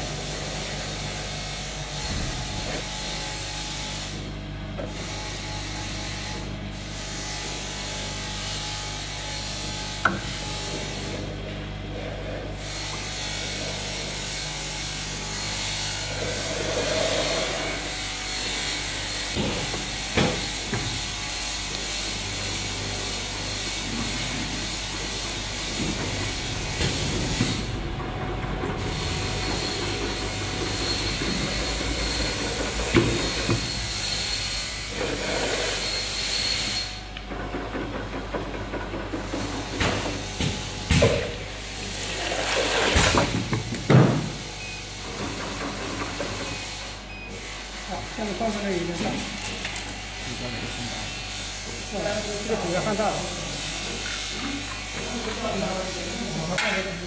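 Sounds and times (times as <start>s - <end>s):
machine hum: 13.5s - 42.9s.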